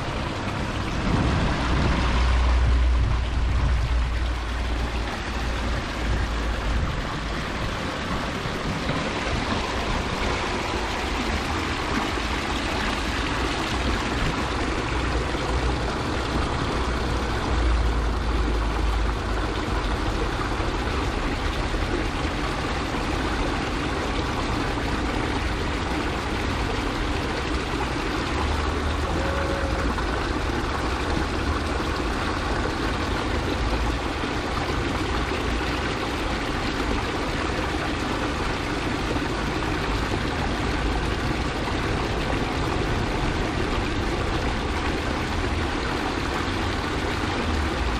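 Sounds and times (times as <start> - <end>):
low rumble: 0.0 - 7.5
water splashing into stone channel: 0.0 - 47.9.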